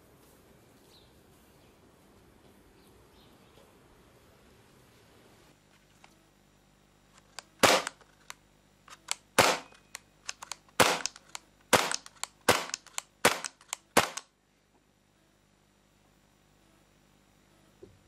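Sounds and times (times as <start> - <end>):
mechanism clicks: 7.2 - 14.3
airsoft pistol shots: 7.6 - 8.0, 9.1 - 14.3.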